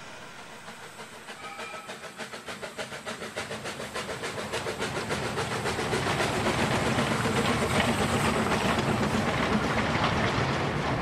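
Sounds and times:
faint train whistle: 0:00.0 - 0:02.4
steam locomotive chuffing: 0:00.0 - 0:11.0.

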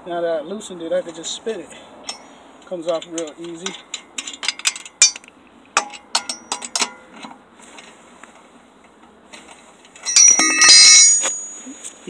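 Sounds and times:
faint handling noise: 0:01.0 - 0:12.0
lug wrench clicking on lug nuts: 0:02.0 - 0:07.0, 0:10.0 - 0:11.6.

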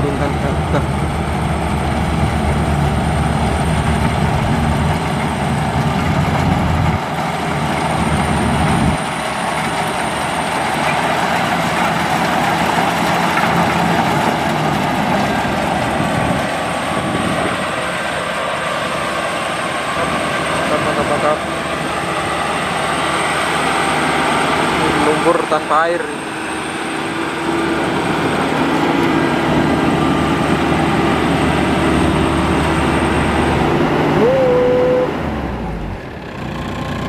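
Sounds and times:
heavy low rumble: 0:00.0 - 0:09.7, 0:13.6 - 0:26.2
combine harvester running: 0:00.0 - 0:37.0.

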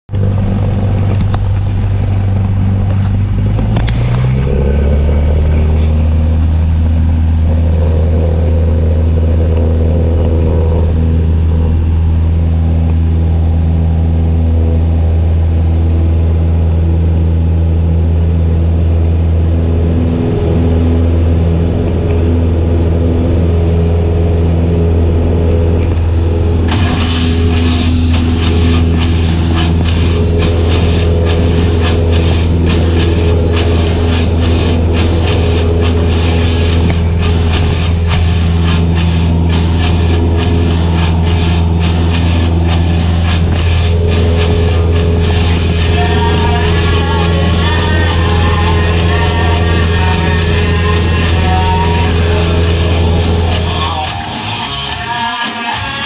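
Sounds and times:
light aircraft engine and propeller: 0:00.1 - 0:54.4
music: 0:26.5 - 0:56.0.

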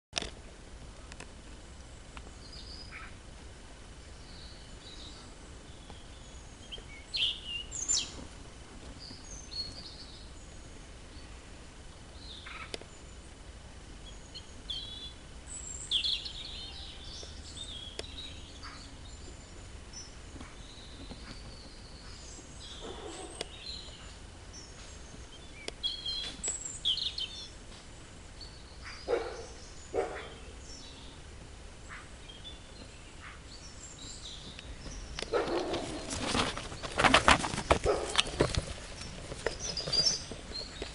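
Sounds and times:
small birds chirping: 0:01.0 - 0:03.2, 0:03.9 - 0:40.9.

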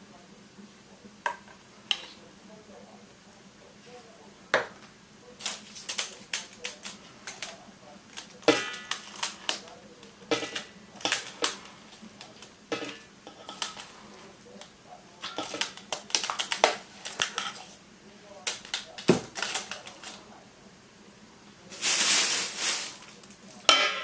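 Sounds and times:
metal spoon clinking on steel bowls: 0:10.3 - 0:13.9, 0:15.2 - 0:17.7, 0:23.7 - 0:24.0.

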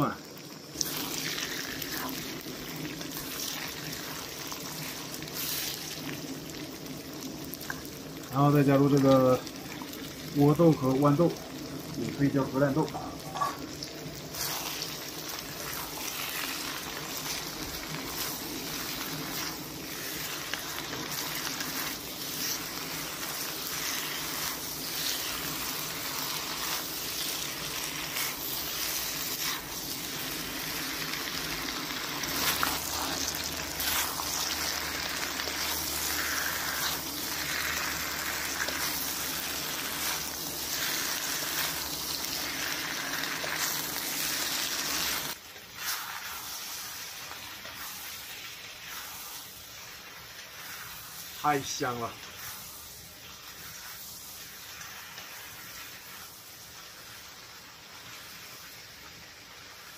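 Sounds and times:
food sizzling in oil: 0:00.0 - 0:59.9
stirring knocks and scrapes: 0:14.3 - 0:30.5, 0:31.1 - 0:42.2.

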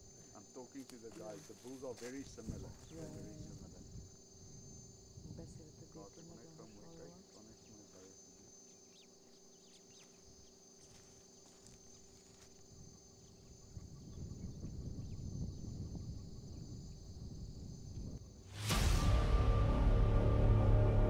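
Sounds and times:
faint chirps: 0:00.0 - 0:18.4
insects buzzing: 0:00.0 - 0:19.2
low rumbling noise: 0:18.5 - 0:21.0.

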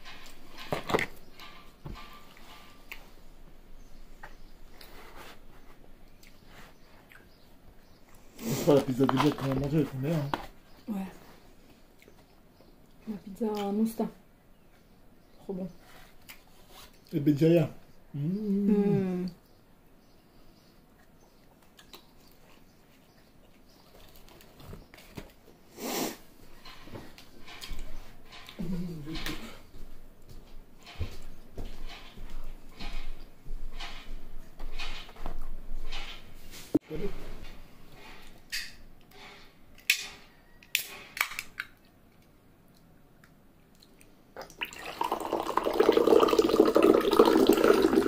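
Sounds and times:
chewing and mouth sounds: 0:07.0 - 0:07.3, 0:21.0 - 0:24.6
drink pouring into a glass: 0:44.4 - 0:48.0.

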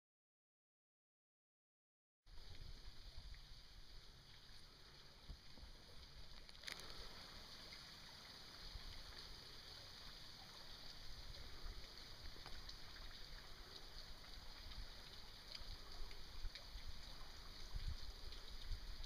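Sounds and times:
faint water sounds: 0:02.3 - 0:19.0
light ticks: 0:10.8 - 0:18.8.

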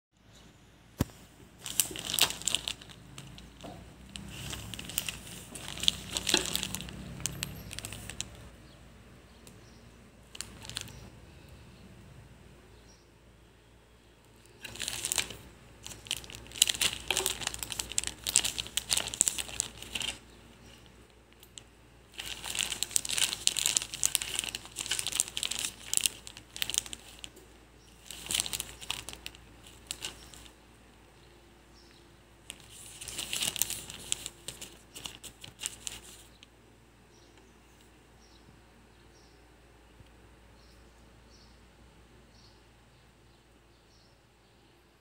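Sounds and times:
plastic sheeting crinkling: 0:01.0 - 0:08.6, 0:10.3 - 0:11.1, 0:14.4 - 0:30.6, 0:32.4 - 0:36.4.

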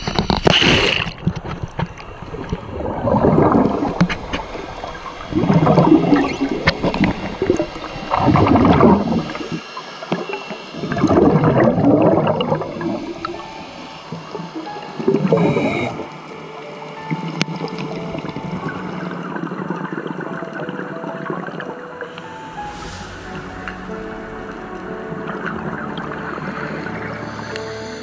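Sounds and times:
steady water hiss: 0:01.7 - 0:28.0
diver's exhaled bubbles gurgling: 0:02.0 - 0:16.1.

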